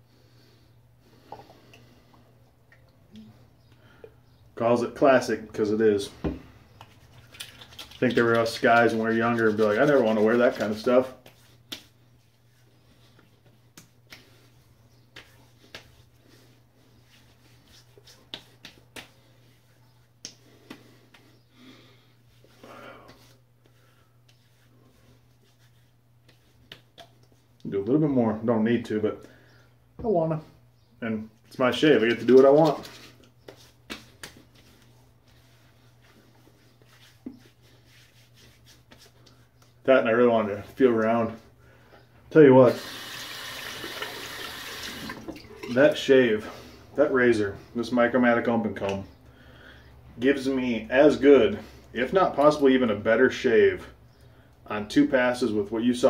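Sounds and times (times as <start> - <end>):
faint room hum: 0.0 - 56.0
palm slapping wet skin: 6.7 - 21.4, 25.3 - 27.6, 32.0 - 39.8.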